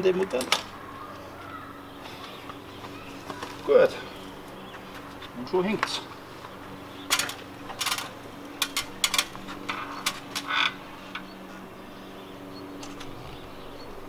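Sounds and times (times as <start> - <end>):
steady low hum: 0.0 - 14.0
metal hardware clicking and knocking: 7.1 - 11.3.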